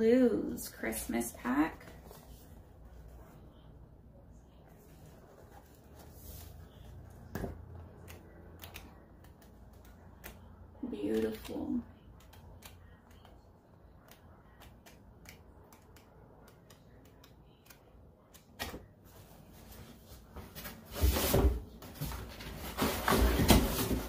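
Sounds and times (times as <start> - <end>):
rustling and bumps of items handled: 18.6 - 24.0.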